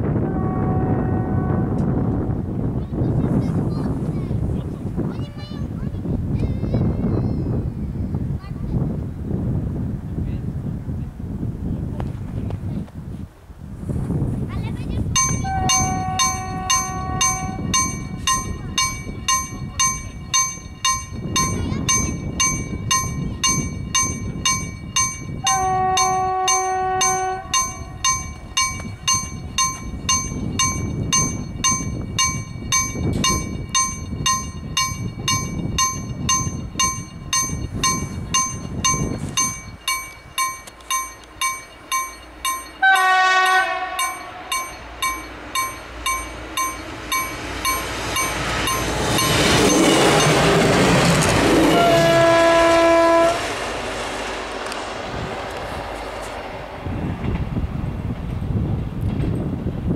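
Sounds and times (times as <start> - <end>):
railbus horn: 0.0 - 2.1, 15.4 - 17.7, 25.4 - 28.0, 42.8 - 44.5, 51.1 - 53.7
railbus running on rails: 0.0 - 59.9
level-crossing bell ringing: 15.2 - 52.4.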